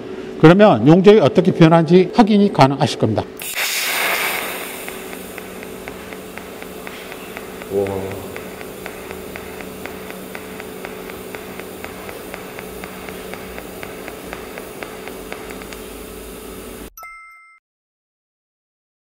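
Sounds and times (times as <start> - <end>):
light ticking of welding arc: 3.4 - 16.9
welding arc hissing and humming: 3.4 - 16.9.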